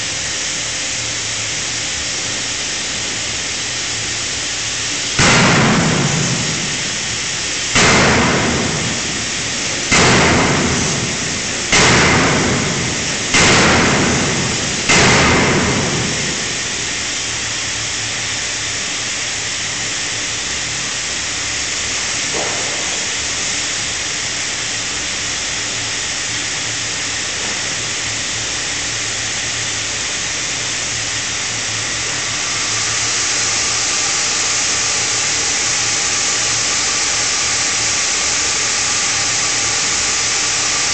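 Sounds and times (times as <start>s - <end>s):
steady hiss and rumble: 0.0s - 40.9s
forging hammer striking steel: 5.2s - 17.1s.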